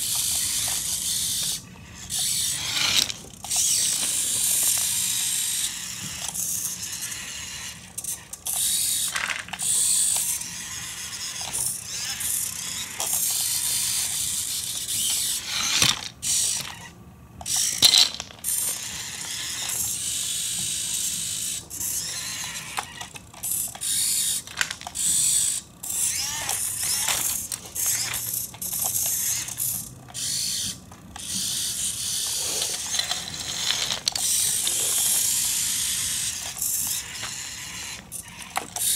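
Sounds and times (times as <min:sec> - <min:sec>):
toy tractor motors whirring: 0:00.0 - 0:38.9
plastic gear clicks: 0:22.6 - 0:37.4.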